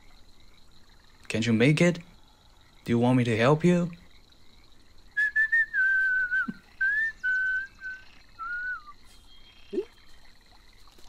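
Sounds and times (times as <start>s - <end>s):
man whistling: 5.2s - 9.0s.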